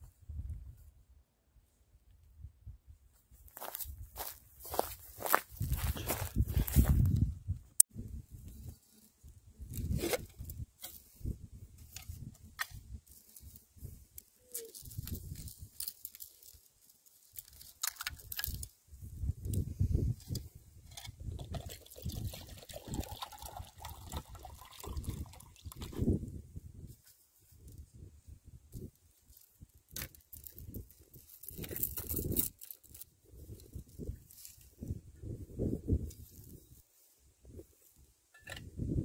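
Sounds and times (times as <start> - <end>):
water pouring into metal cup: 21.3 - 26.0.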